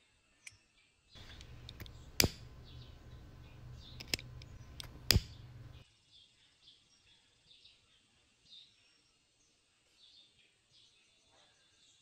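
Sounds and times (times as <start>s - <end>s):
fire crackling and popping: 1.2s - 5.8s.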